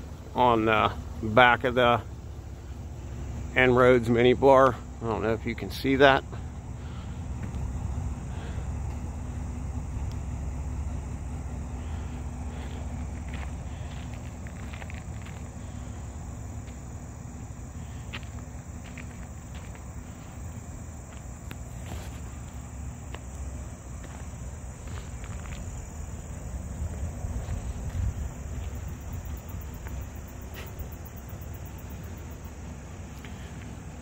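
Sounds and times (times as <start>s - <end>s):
insects droning: 0.0s - 34.0s
low outdoor rumble: 0.0s - 34.0s
light ticks: 10.0s - 10.3s
footsteps: 12.0s - 32.4s.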